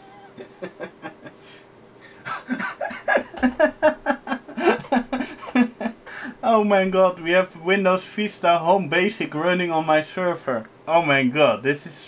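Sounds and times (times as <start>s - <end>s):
man laughing: 0.0s - 6.8s.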